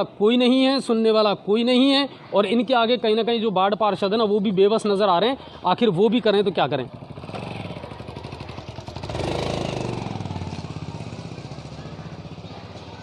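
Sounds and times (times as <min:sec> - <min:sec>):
vehicle engine running: 0:06.9 - 0:13.0.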